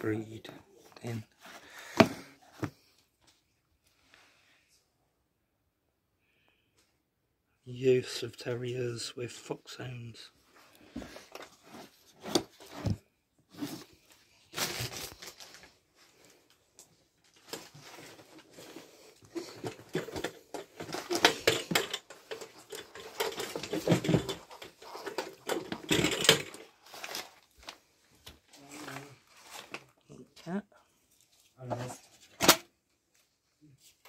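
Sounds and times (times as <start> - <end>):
objects rustling and knocking: 0.9 - 3.5, 10.5 - 30.0, 31.2 - 32.7.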